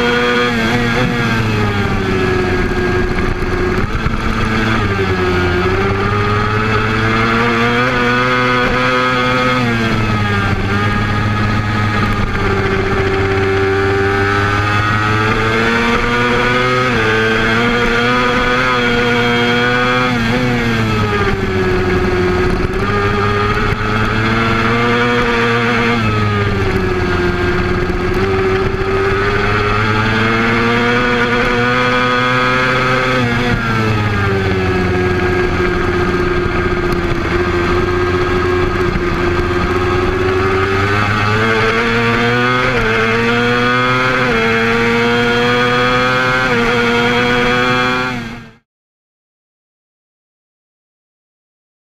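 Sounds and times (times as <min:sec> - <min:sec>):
motorcycle engine revving: 0:00.0 - 0:48.6.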